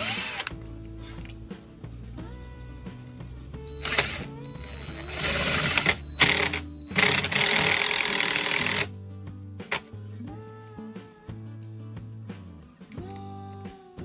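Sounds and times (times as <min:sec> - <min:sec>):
impact driver driving screws: 0:00.0 - 0:00.5, 0:03.8 - 0:08.9
guitar music: 0:02.3 - 0:14.0.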